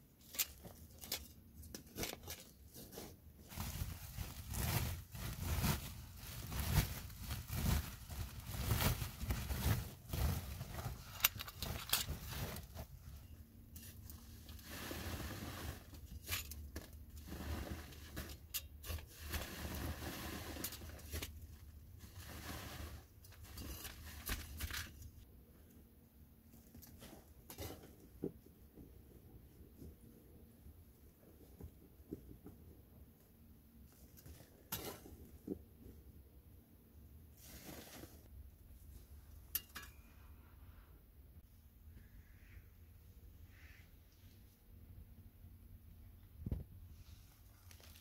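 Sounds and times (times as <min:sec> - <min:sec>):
plastic sack rustling: 0:02.8 - 0:13.2, 0:47.1 - 0:48.0.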